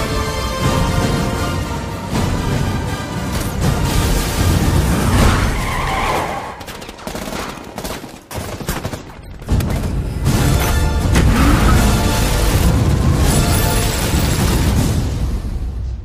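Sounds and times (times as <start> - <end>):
dramatic music: 0.0 - 6.6, 9.5 - 16.0
automatic gunfire: 6.6 - 10.1.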